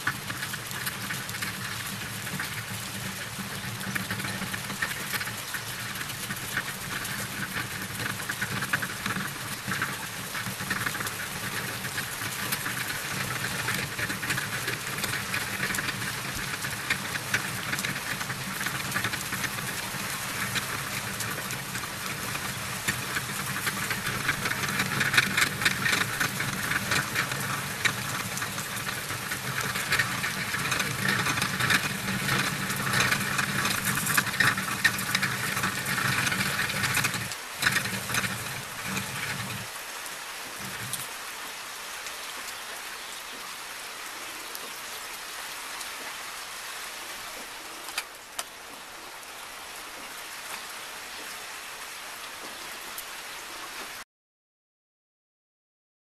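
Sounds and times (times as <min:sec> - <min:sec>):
fishing reel whirring rattle: 0:10.4 - 0:39.7.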